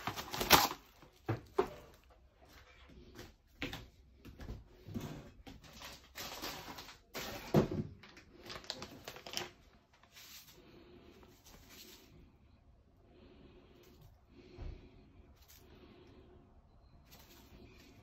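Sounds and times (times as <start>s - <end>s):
plastic crinkling and rustling: 0.0s - 2.1s, 5.6s - 10.6s.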